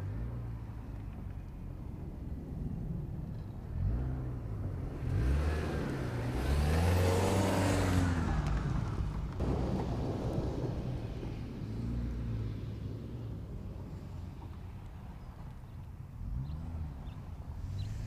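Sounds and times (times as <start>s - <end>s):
engine revving: 3.7s - 10.4s.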